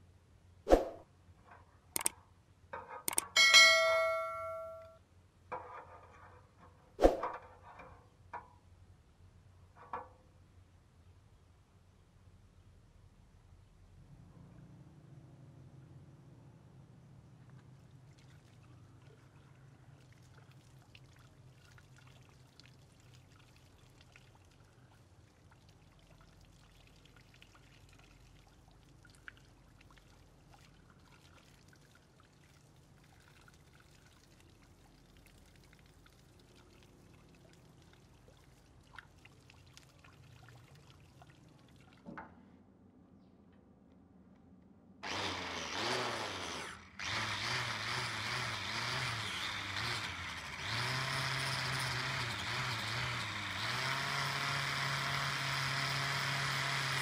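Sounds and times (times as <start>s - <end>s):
hose water over knife blade: 18.0s - 42.1s
wire wheel scrubbing blade: 45.0s - 57.0s.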